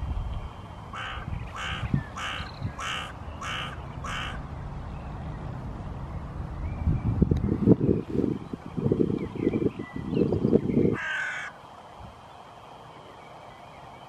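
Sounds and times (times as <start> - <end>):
crow cawing: 0.9 - 4.4, 11.0 - 11.6
low rumble: 3.8 - 8.8.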